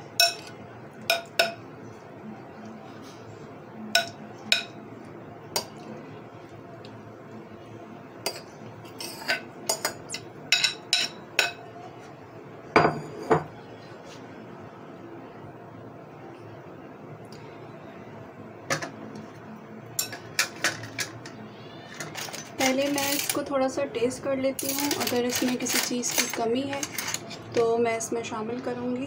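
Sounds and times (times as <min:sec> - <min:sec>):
metal spoon clinking on ceramic bowls: 0:00.2 - 0:00.5.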